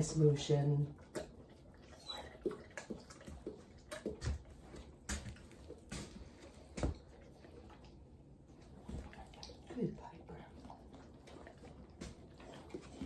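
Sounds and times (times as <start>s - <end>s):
dog chewing and smacking: 0.0s - 13.0s.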